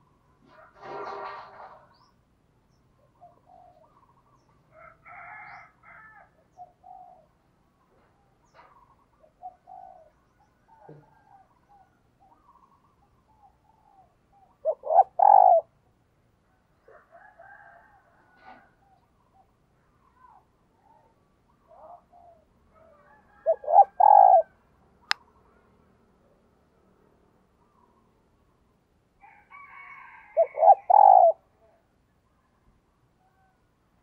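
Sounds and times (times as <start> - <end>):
dove cooing: 3.0 - 4.2, 6.5 - 7.4, 8.5 - 12.8, 13.4 - 15.7, 21.7 - 24.6, 30.3 - 31.5.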